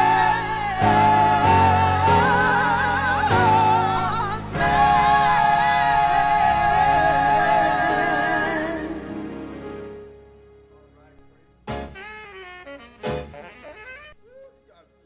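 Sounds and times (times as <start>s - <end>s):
vocal group singing in harmony: 0.0s - 10.2s
sustained keyboard chords: 0.0s - 14.8s.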